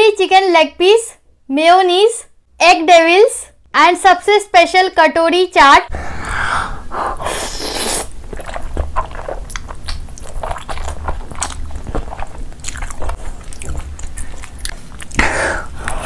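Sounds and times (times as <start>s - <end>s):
wet chewing mouth clicks: 7.5s - 16.0s.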